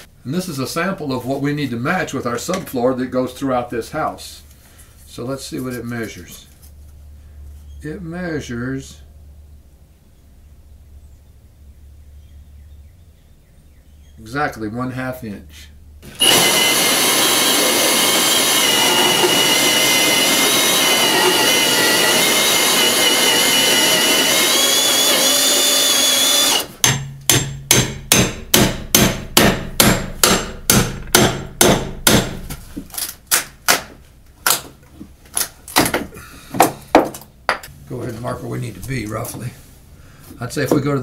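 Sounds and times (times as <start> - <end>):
drill whining through wood: 16.0 - 26.8.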